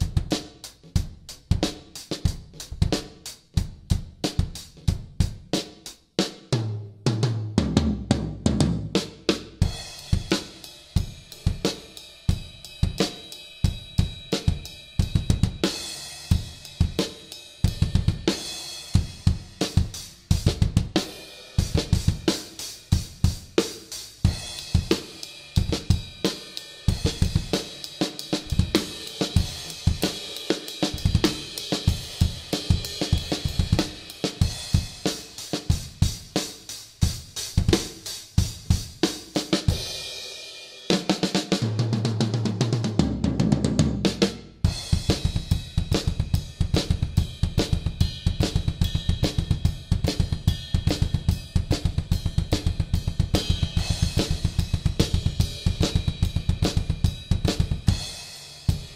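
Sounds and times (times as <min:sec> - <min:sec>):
drum kit playing: 0:00.0 - 0:58.9
cymbals and hi-hat ringing: 0:09.6 - 0:40.9, 0:44.6 - 0:58.9.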